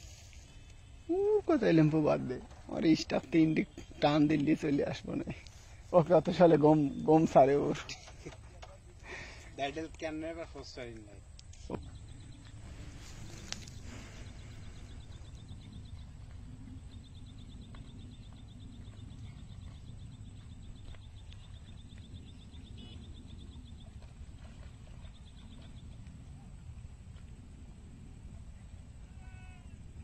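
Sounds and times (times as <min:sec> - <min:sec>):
wind rumble on microphone: 0:11.8 - 0:30.0.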